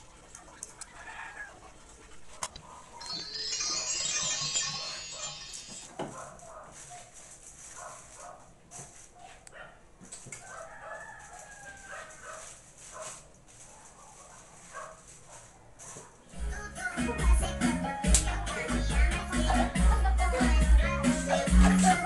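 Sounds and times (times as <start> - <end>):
rooster crowing: 10.4 - 12.2.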